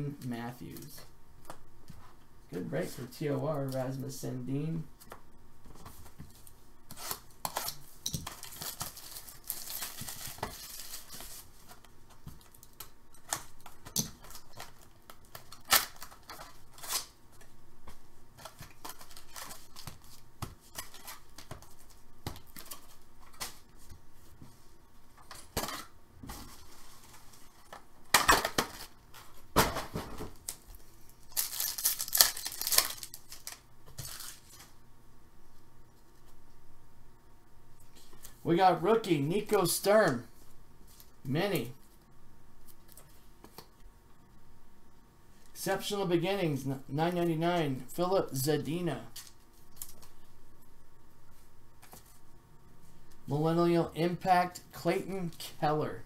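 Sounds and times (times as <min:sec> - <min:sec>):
tearing and crinkling of wrapping: 0:07.0 - 0:11.5, 0:31.3 - 0:34.6.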